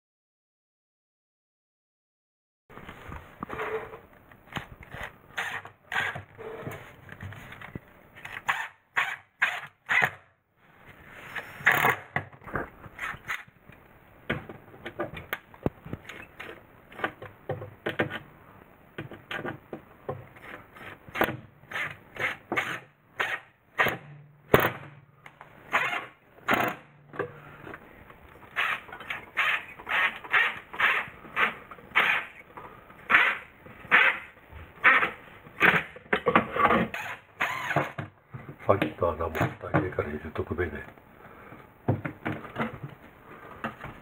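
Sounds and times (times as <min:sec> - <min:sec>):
cordless drill driving screws: 0:25.7 - 0:26.8, 0:28.5 - 0:32.4, 0:36.9 - 0:38.0.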